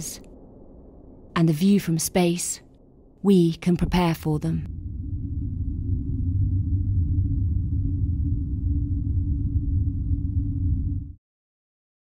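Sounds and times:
deep low music drone: 0:04.6 - 0:11.2.

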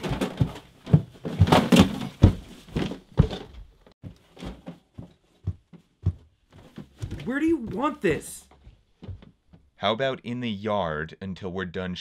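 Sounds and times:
hard objects knocking and clattering: 0:00.0 - 0:03.7.

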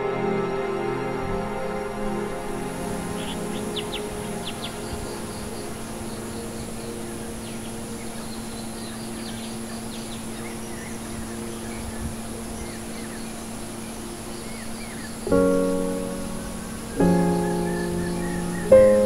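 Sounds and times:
soft held chord: 0:00.0 - 0:19.0
loud piano chord: 0:15.3 - 0:19.0.

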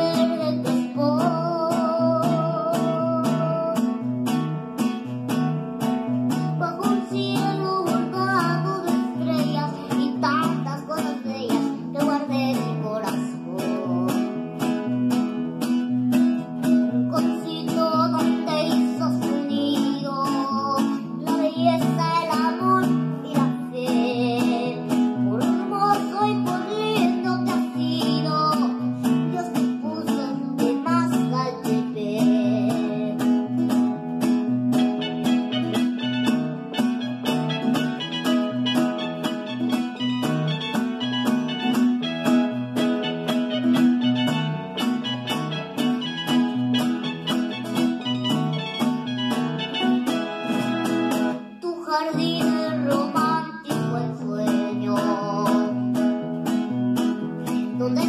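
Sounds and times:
boy singing: 0:00.0 - 0:04.1, 0:06.3 - 0:14.4, 0:16.8 - 0:33.9, 0:51.5 - 0:56.2, 0:57.4 - 0:58.0
regular beat: 0:34.7 - 0:51.5.

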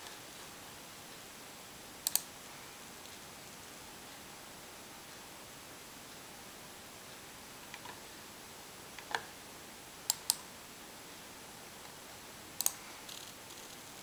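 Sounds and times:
faint steady hiss: 0:00.0 - 0:14.0
computer mouse clicking: 0:02.0 - 0:02.3, 0:10.1 - 0:10.5, 0:12.6 - 0:13.8.

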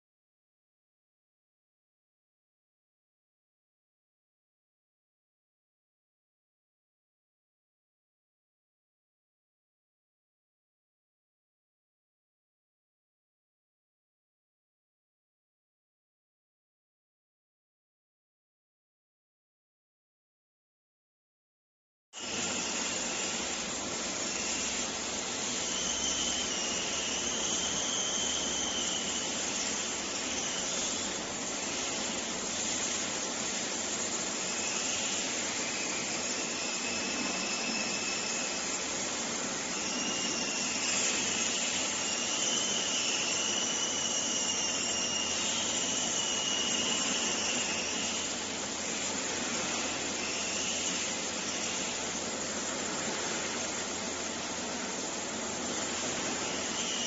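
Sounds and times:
faint wavering whistles: 0:22.2 - 0:52.8, 0:53.8 - 0:57.0.

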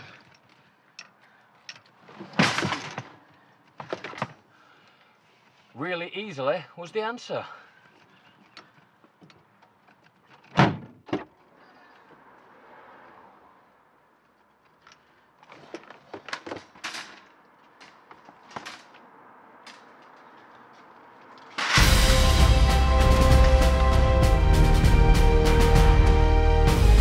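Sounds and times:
car tailgate slamming: 0:10.5 - 0:11.3.

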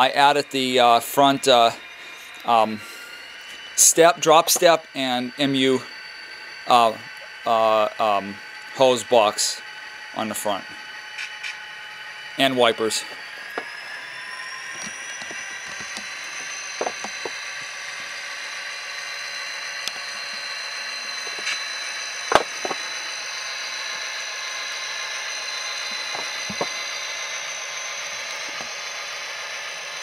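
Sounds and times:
model train motor whine: 0:00.0 - 0:30.0.

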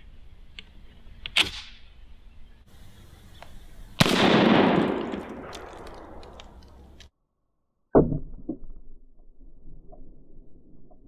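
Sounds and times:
rifle shot echo: 0:04.0 - 0:06.5
small clicks: 0:05.1 - 0:07.1.

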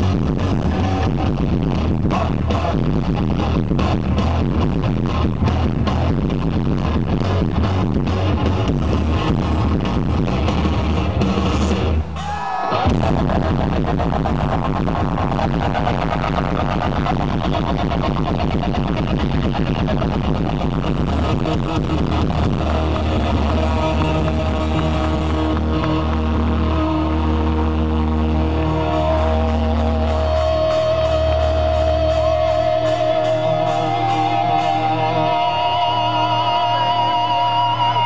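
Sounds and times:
deep bass drone: 0:00.0 - 0:12.2, 0:12.8 - 0:38.0
electric guitar notes with vibrato: 0:21.0 - 0:38.0.

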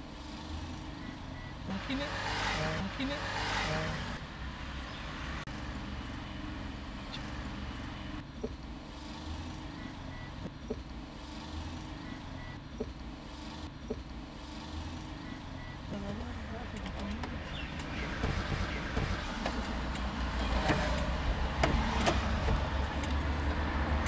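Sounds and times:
car engine and tyre noise: 0:00.0 - 0:24.0.

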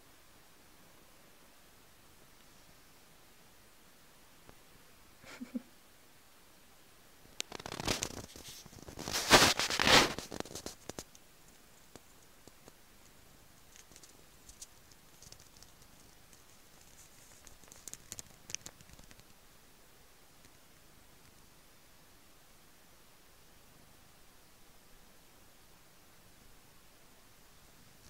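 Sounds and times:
faint clicks: 0:07.4 - 0:08.4, 0:10.3 - 0:19.4
fabric rustling and scuffing: 0:07.9 - 0:10.8.

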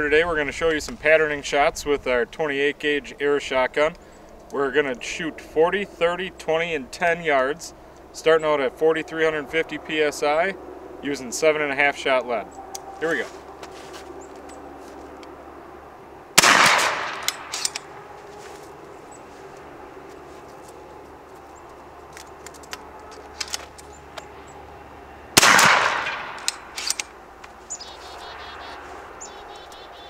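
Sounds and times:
air shotgun shots: 0:16.4 - 0:17.8, 0:25.4 - 0:27.0
small sharp clicks: 0:25.8 - 0:27.6.

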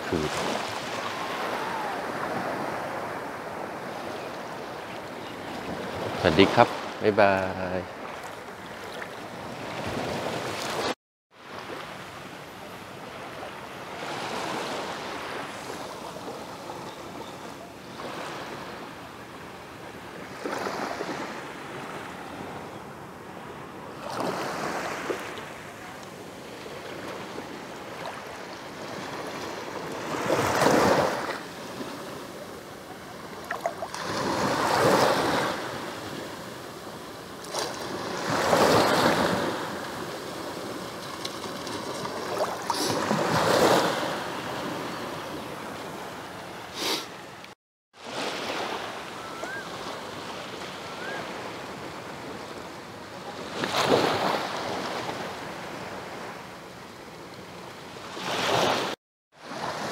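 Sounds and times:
small waves washing on sand: 0:00.0 - 0:04.6, 0:23.5 - 0:47.2, 0:48.0 - 0:56.5, 0:58.0 - 0:59.9.

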